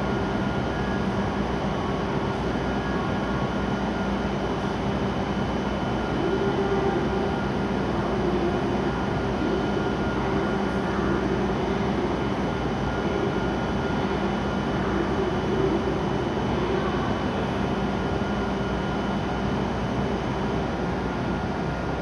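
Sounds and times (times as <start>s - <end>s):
train equipment humming: 0.0s - 22.0s.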